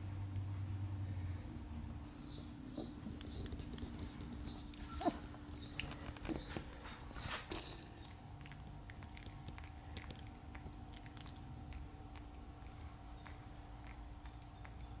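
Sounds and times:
puppy squeaks: 2.7 - 3.4, 4.4 - 6.5
puppies chewing mouth clicks: 2.7 - 15.0.

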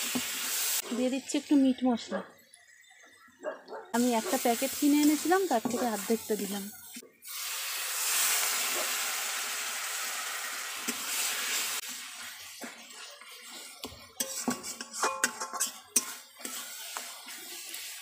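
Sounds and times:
meat sizzling in a pan: 0.0 - 1.6, 4.0 - 18.0
metal spatula scraping a pan: 4.4 - 7.0, 10.8 - 18.0.

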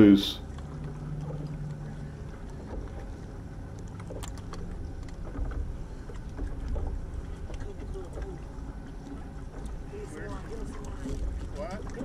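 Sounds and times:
choppy water: 0.0 - 12.0
wind: 0.0 - 12.0
faint clicks and knocks: 0.5 - 9.8.

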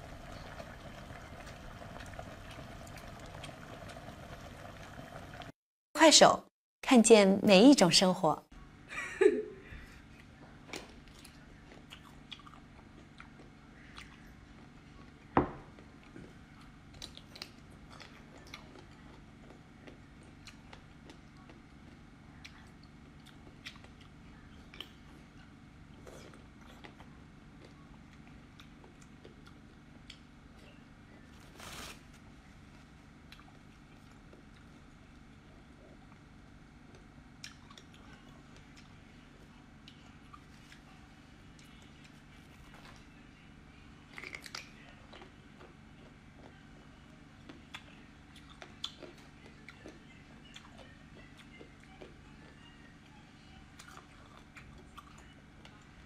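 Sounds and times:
low steady hum: 0.0 - 5.5, 6.3 - 56.0
wet chewing and smacking: 10.2 - 30.3, 33.2 - 39.0, 44.1 - 46.6, 47.4 - 52.6, 53.8 - 55.9
tissue rustling: 31.3 - 32.2.

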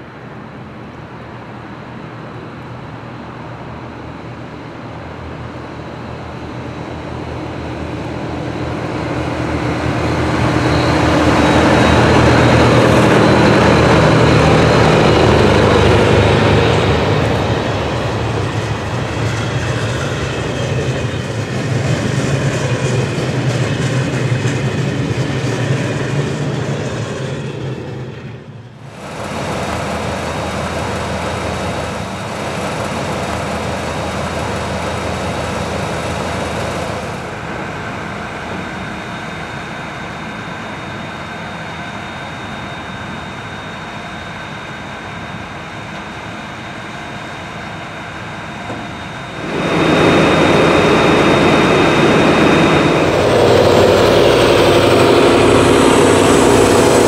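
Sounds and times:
train passing: 0.0 - 42.0, 47.5 - 57.0
wheels clicking on rails: 28.9 - 37.4.

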